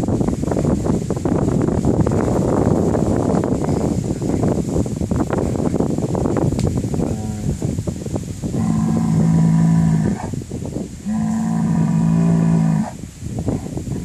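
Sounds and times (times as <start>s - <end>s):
bull bellowing: 8.6s - 10.3s, 11.0s - 13.0s.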